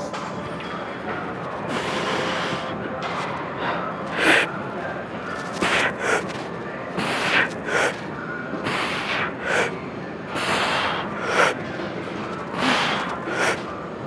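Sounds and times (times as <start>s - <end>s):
man breathing forcefully: 3.6s - 4.5s, 5.5s - 6.4s, 7.0s - 8.0s, 8.7s - 9.8s, 10.4s - 11.6s, 12.6s - 13.7s.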